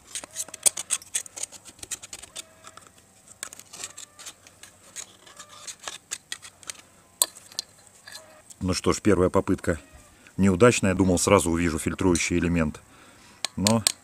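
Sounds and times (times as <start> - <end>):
metal tool scraping and clicking: 0.0 - 8.4, 13.4 - 14.0.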